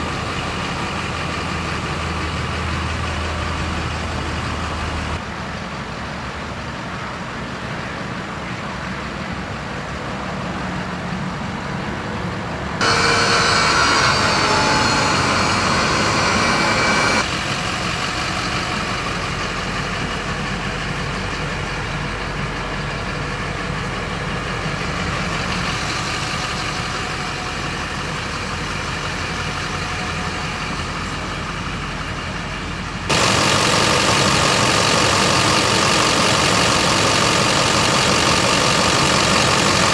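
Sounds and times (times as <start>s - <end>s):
truck engine idling: 0.0s - 9.2s, 12.8s - 39.9s
high whine: 12.8s - 17.3s.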